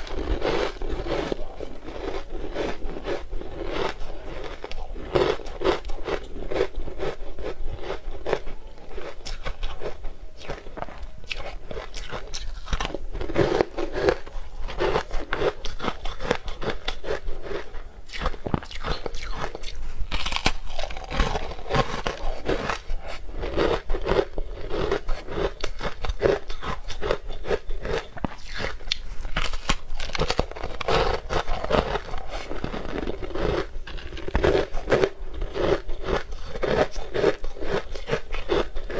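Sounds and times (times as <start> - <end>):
teeth crunching ice: 0.0 - 38.9.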